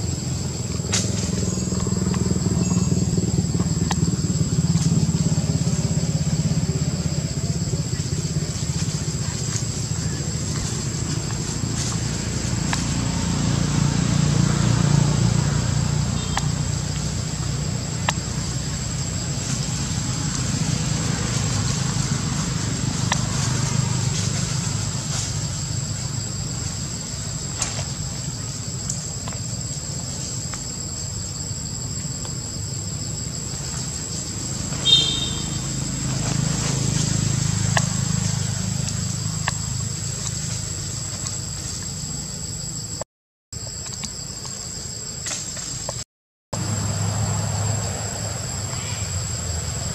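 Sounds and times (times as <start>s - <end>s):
insect drone: 0.0s - 43.0s, 43.6s - 46.0s, 46.6s - 49.9s
high-pitched call: 34.8s - 35.7s.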